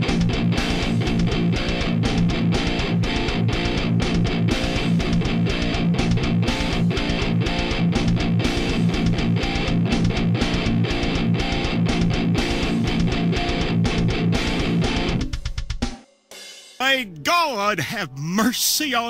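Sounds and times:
distorted electric guitar riffing: 0.0 - 15.2.

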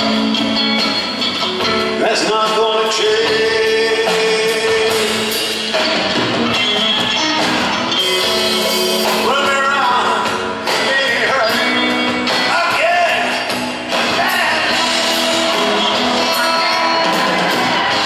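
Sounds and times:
live rock band playing: 0.0 - 18.0
man singing long notes: 2.0 - 5.5.

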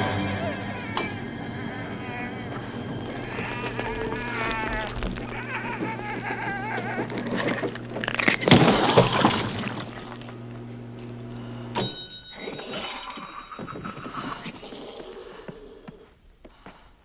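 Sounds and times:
microwave oven humming: 0.0 - 12.3
bright ringing tone: 11.7 - 14.4.

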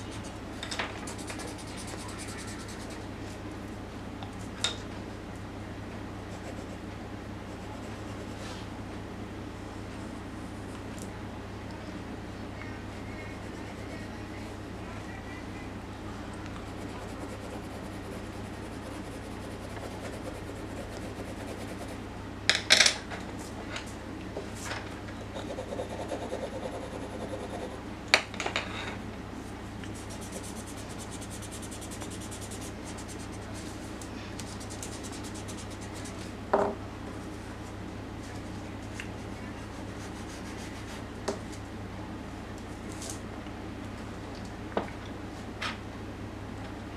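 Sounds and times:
pencil scratching on paper: 0.0 - 0.4, 1.0 - 3.0, 6.3 - 6.8, 16.7 - 22.0, 25.3 - 27.8, 30.0 - 33.7, 34.5 - 36.2
steady low hum: 0.0 - 46.9.

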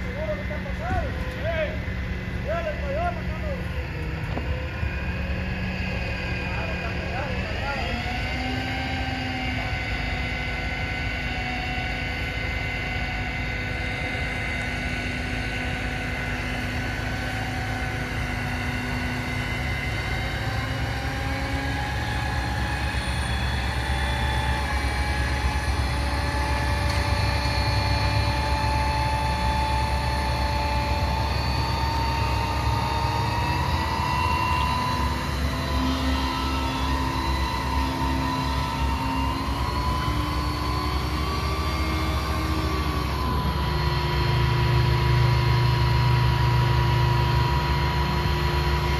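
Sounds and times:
crane diesel engine whining: 0.0 - 48.9.

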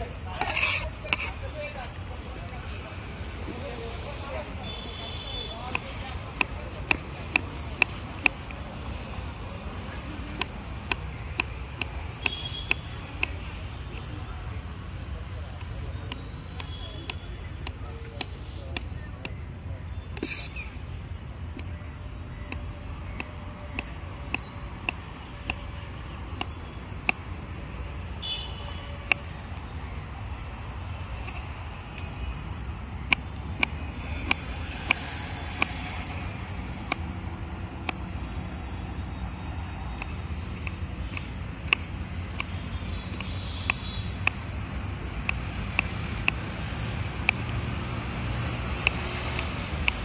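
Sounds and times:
low street rumble: 0.0 - 50.0
knife chopping on wooden board: 0.4 - 1.3.

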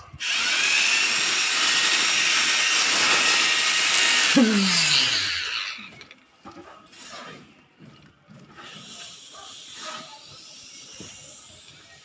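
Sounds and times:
motor winding down: 0.2 - 2.2, 3.1 - 6.0.

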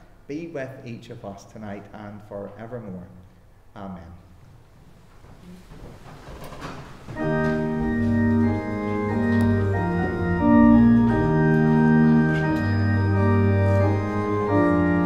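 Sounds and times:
organ playing slow chords: 7.2 - 15.0.

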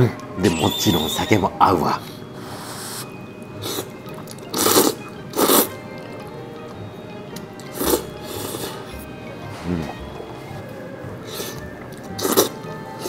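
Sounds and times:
person slurping noodles: 2.4 - 5.7, 7.8 - 10.4, 11.3 - 12.6.

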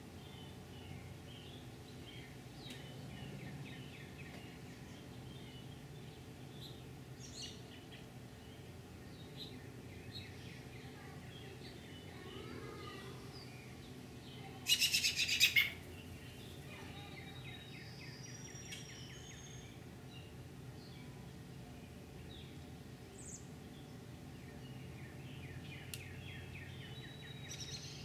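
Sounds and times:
birds chirping: 0.0 - 28.0
steady low hum: 0.0 - 28.0
loud rapid bird trill: 14.7 - 16.4.

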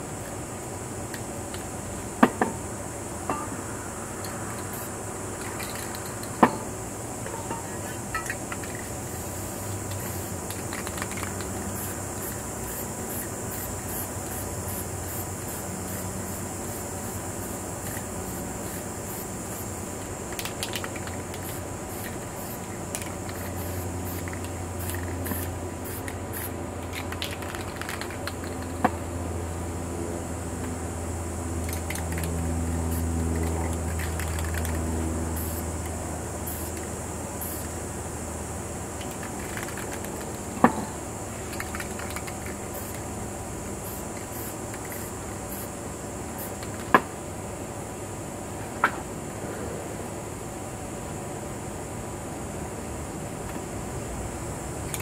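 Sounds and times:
spray paint can hissing: 4.2 - 6.7, 7.5 - 28.8, 31.6 - 32.3, 32.9 - 35.8, 36.4 - 37.7, 39.0 - 40.5, 41.4 - 43.1, 43.8 - 45.8, 46.4 - 46.9
low droning hum: 20.9 - 41.4.

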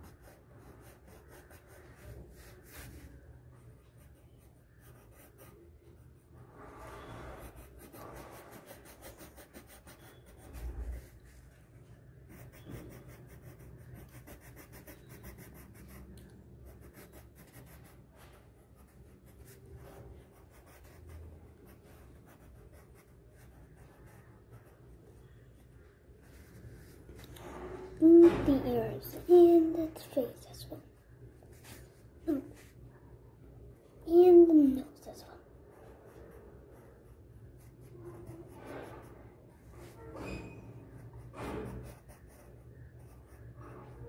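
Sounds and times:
pencil scratching on paper: 0.0 - 25.4, 34.2 - 44.0.

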